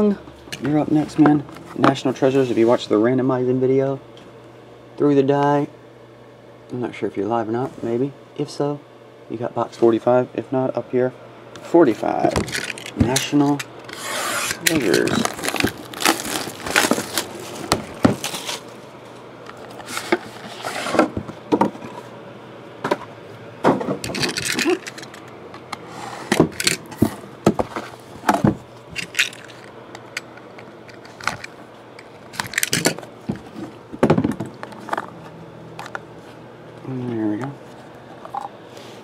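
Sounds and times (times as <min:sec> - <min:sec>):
plastic wrap crinkling: 0:14.5 - 0:18.8.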